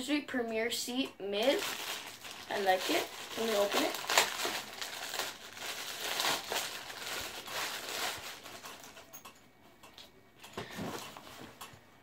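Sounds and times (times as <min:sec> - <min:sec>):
plastic bag crinkling: 0:01.4 - 0:09.2.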